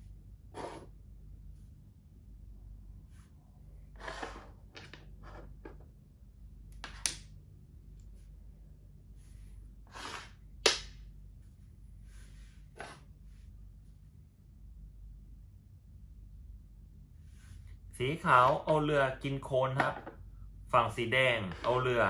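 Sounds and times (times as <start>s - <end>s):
pieces brushing on board: 9.9s - 10.4s, 12.1s - 13.1s.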